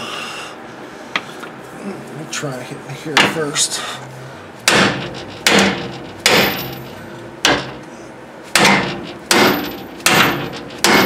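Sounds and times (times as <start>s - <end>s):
hammer striking steel: 4.6s - 7.8s, 8.5s - 11.0s.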